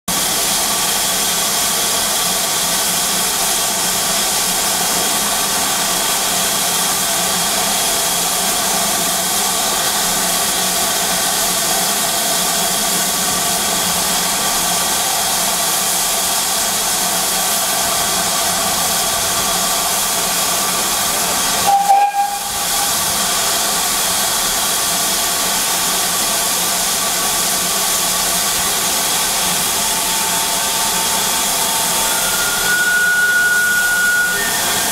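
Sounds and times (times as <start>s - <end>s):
steam locomotive hissing: 0.1s - 34.9s
short tone: 21.7s - 22.5s, 30.4s - 34.9s.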